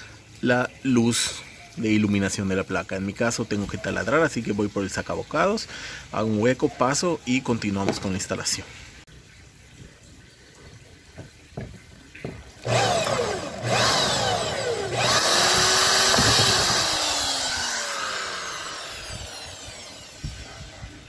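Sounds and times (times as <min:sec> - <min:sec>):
drill with hole saw boring metal: 0:12.6 - 0:21.0.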